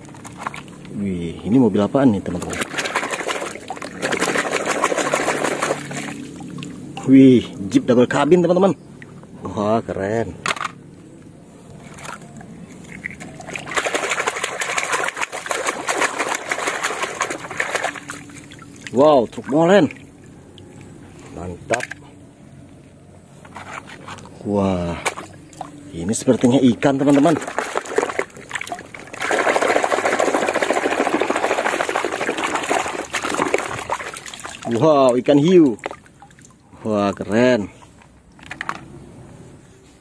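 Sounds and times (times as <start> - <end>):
water splashing and sloshing: 0.0 - 9.5, 11.4 - 24.4, 25.0 - 38.8
hand scrubbing toy in water: 2.2 - 6.8, 11.8 - 20.0, 26.3 - 36.6.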